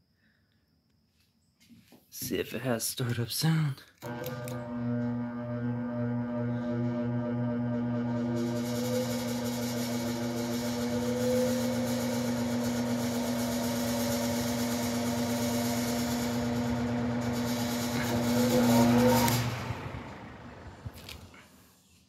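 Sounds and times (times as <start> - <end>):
electric fan humming: 4.0 - 21.4.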